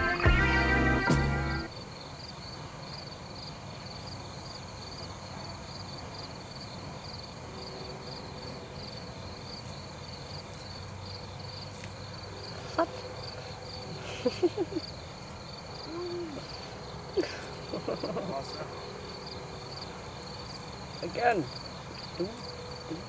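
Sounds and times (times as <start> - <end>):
music track: 0.0 - 1.7
crickets chirping: 0.0 - 23.0.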